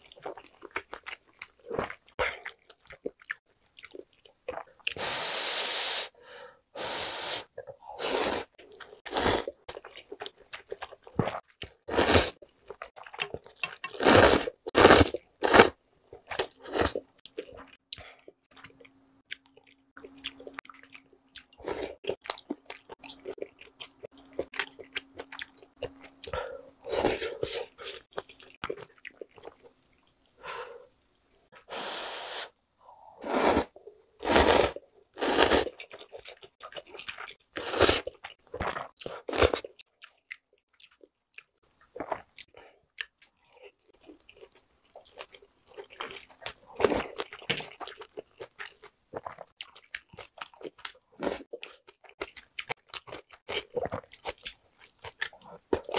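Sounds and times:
slurping noodles and soup: 0:06.8 - 0:09.8, 0:11.8 - 0:12.4, 0:13.9 - 0:15.8, 0:31.6 - 0:32.6, 0:33.2 - 0:35.8, 0:37.6 - 0:38.1
wet chewing: 0:34.3 - 0:55.9.

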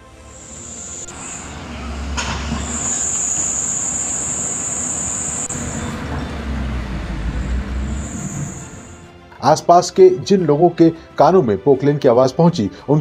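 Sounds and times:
high steady squeal: 0:00.1 - 0:09.0
excavator engine rumble: 0:01.1 - 0:09.0.

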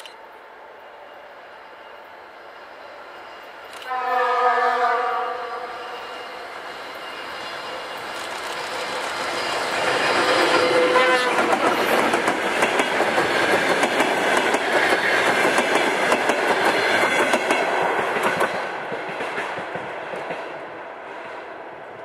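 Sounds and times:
diesel locomotive engine passing: 0:00.2 - 0:22.0
train wheels clicking over rail joints: 0:07.9 - 0:20.6.

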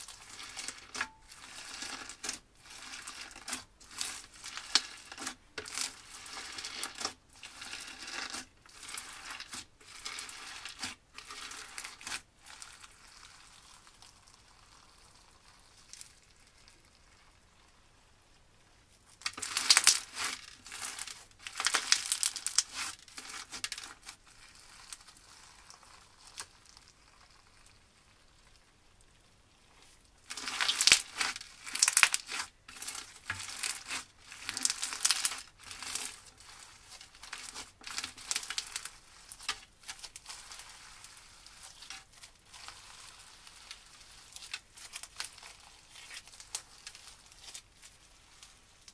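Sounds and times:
slime crunching when squeezed: 0:19.3 - 0:27.8, 0:30.2 - 0:48.9.

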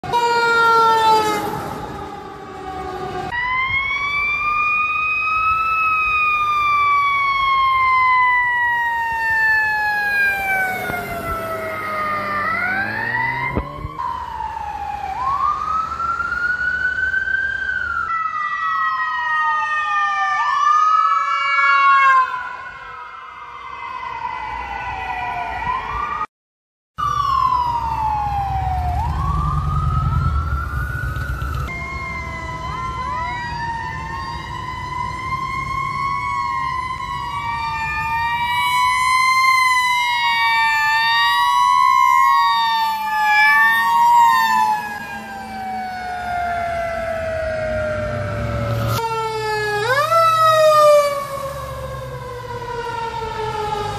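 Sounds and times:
emergency vehicle sirens wailing: 0:00.0 - 0:26.3, 0:27.0 - 0:53.9
low vehicle rumble: 0:27.1 - 0:37.0.

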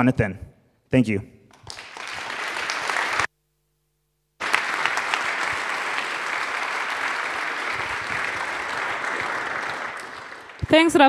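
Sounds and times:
audience applauding: 0:01.5 - 0:03.3, 0:04.4 - 0:11.0.

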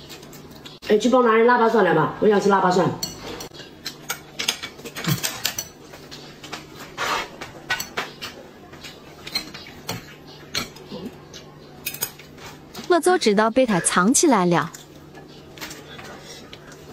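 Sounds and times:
chopsticks clinking on ceramic bowls: 0:03.0 - 0:05.9, 0:09.3 - 0:12.4.

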